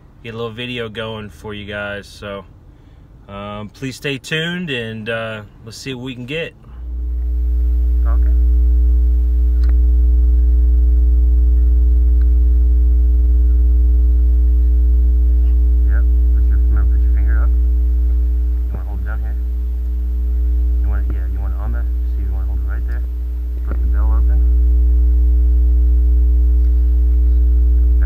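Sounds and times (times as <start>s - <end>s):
loud electrical hum: 0.0s - 28.0s
faint high steady tones: 6.7s - 28.0s.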